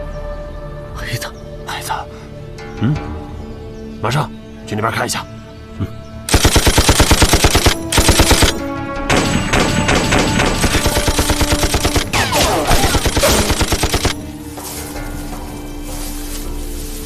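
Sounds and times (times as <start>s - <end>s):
machine gun firing bursts: 6.3s - 14.2s.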